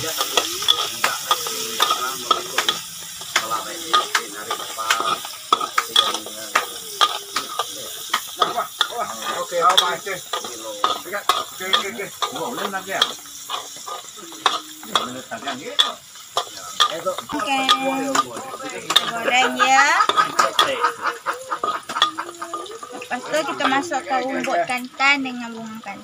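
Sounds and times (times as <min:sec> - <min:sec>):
metal spatula scraping a wok: 0:00.0 - 0:20.8
garlic sizzling in hot oil: 0:00.0 - 0:26.0.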